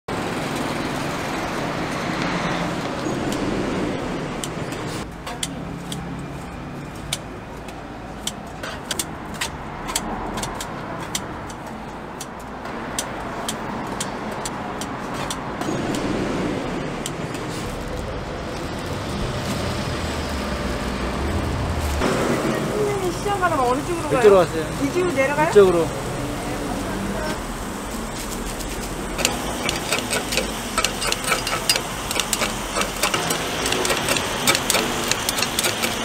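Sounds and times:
city traffic noise: 0.0 - 36.0
sharp clicks and taps: 7.0 - 16.1, 29.1 - 36.0.

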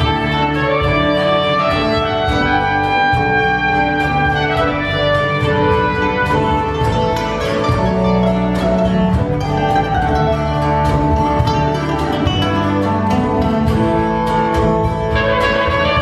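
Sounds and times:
acoustic band music: 0.0 - 16.0
plucked string instrument: 0.0 - 16.0.

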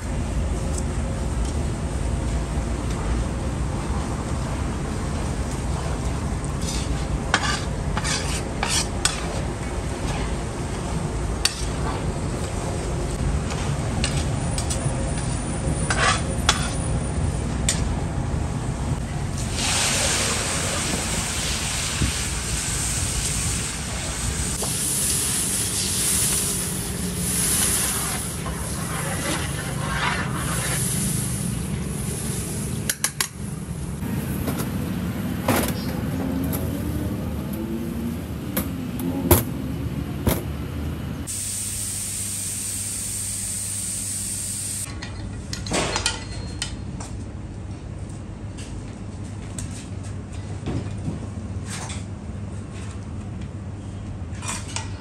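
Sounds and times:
onions frying in oil: 19.4 - 28.8, 41.3 - 44.9
water hissing in hot oil: 19.4 - 32.6, 41.3 - 44.9.

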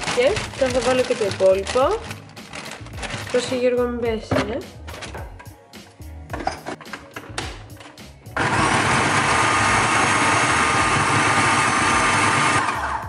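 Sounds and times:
food processor chopping: 8.4 - 13.0.

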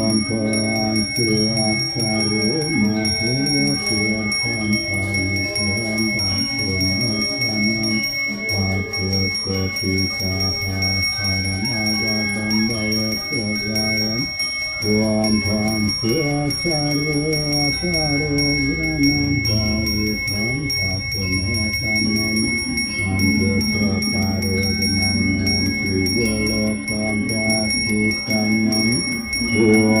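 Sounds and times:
brass handbell ringing: 0.0 - 30.0
man chanting: 0.0 - 30.0.

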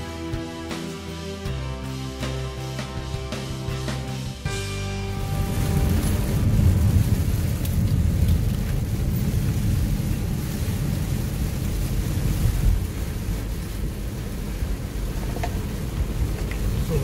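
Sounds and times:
road and wind noise: 0.0 - 17.0
rain striking windshield: 5.2 - 17.0.

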